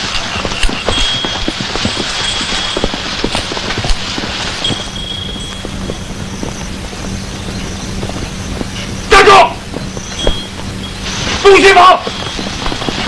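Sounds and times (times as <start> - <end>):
footsteps: 0.0 - 13.0
steady hiss: 0.0 - 13.0.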